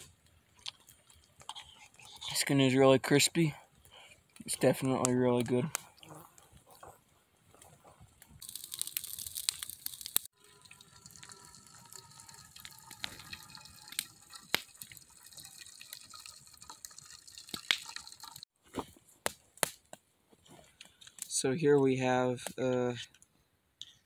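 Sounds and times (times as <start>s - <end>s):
liquid pouring and splashing: 8.4s - 18.5s.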